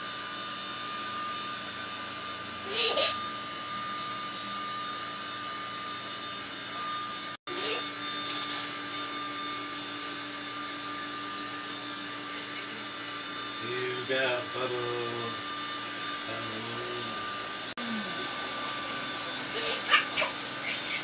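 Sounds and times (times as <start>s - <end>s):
electric motor whirring: 0.0s - 21.0s.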